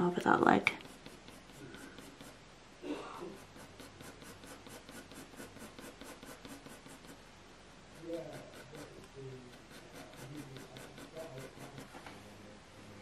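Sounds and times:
pencil shading on paper: 0.7 - 2.4, 3.2 - 7.3, 7.9 - 12.0.

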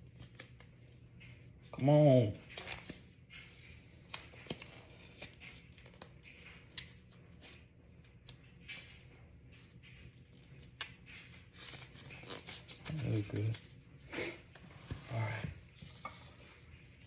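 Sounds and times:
plastic gloves crinkling: 10.6 - 13.7.

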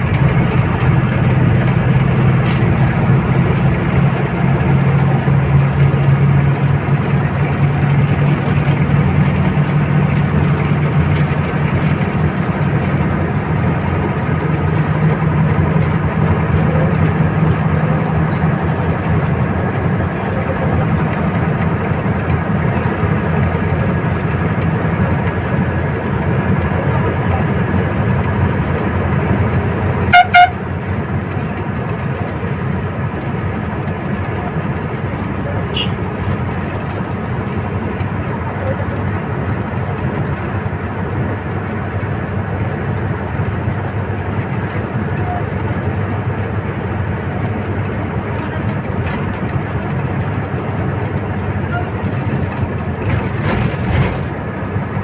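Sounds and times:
diesel bus engine running: 0.0 - 55.0
bus horn blasts: 30.0 - 30.7, 35.7 - 36.1.

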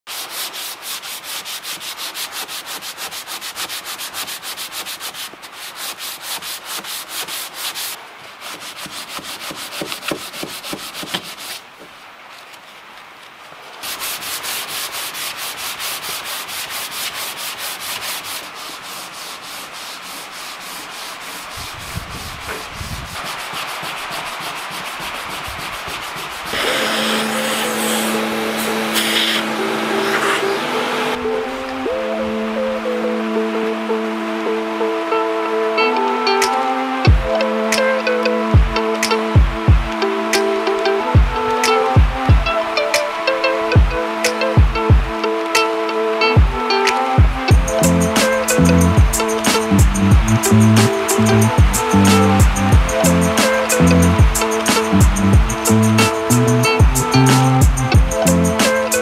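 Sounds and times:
hand sanding fiberglass: 0.1 - 12.0, 13.8 - 31.2, 47.4 - 59.0.

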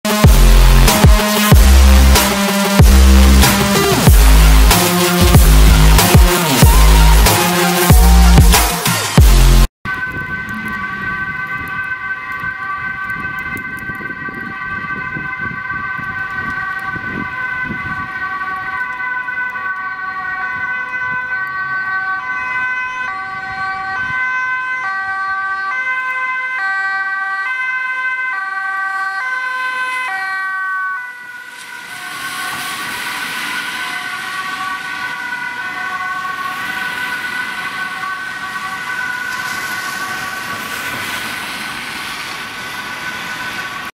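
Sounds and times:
two-tone ambulance sirens: 0.0 - 43.9
tyre hiss on wet road: 31.5 - 35.3, 36.3 - 43.9.

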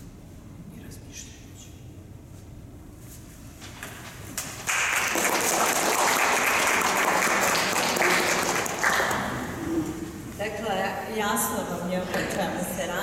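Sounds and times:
audience applauding: 4.5 - 9.6.

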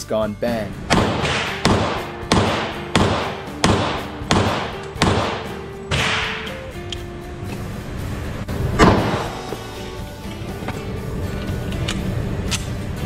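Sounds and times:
pistol shots echoing indoors: 0.9 - 6.7.

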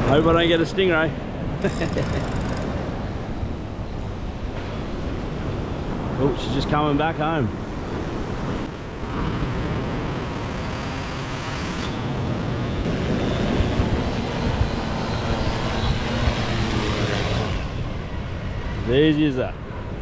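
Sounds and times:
drone propellers buzzing: 1.4 - 3.8, 10.2 - 19.2.

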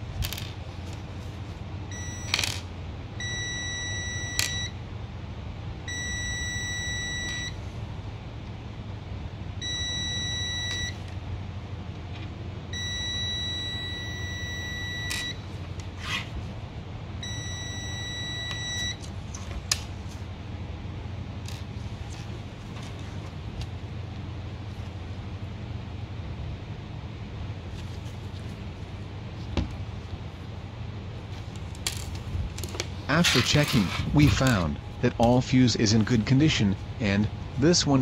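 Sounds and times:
multimeter continuity beep: 1.9 - 2.4, 3.2 - 4.8, 5.9 - 7.6, 9.6 - 11.0, 12.7 - 15.4, 17.2 - 19.0.

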